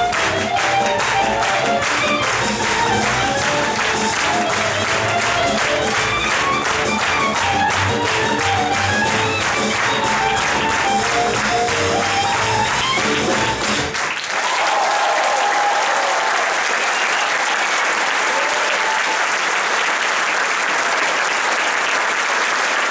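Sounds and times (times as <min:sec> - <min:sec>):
klezmer band playing: 0:00.0 - 0:14.2
audience applause: 0:00.0 - 0:22.9.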